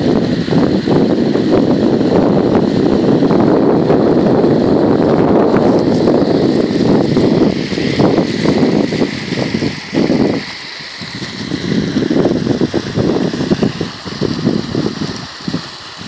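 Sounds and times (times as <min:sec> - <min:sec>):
water rushing into a pond: 0:00.0 - 0:16.0
wind buffeting microphone: 0:00.0 - 0:16.0.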